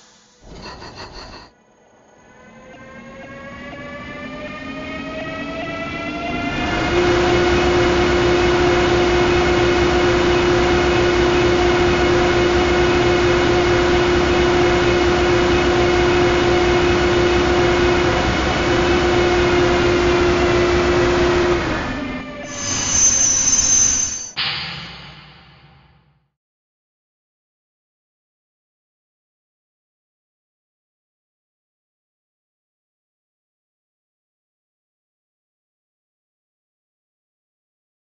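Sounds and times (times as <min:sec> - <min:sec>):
electric locomotive whine: 0:01.6 - 0:24.4.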